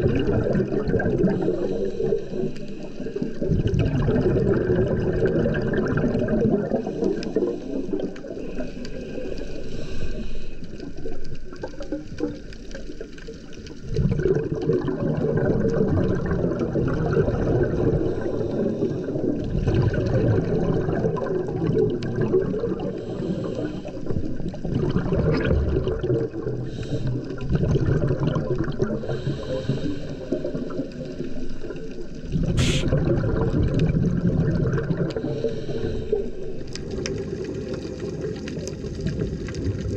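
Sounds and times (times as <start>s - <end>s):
scuba regulator exhaled bubbles: 0.0s - 39.9s.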